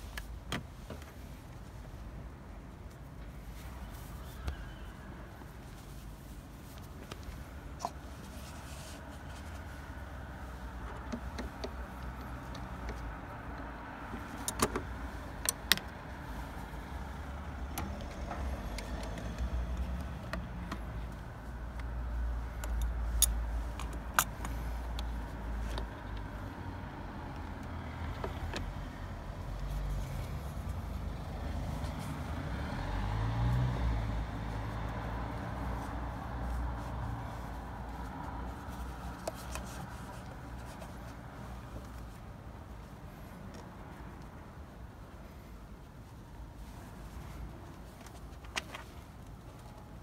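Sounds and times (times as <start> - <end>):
motor vehicle rumble: 0.0 - 50.0
tools and plastic parts clicking: 14.2 - 15.9, 22.6 - 26.3.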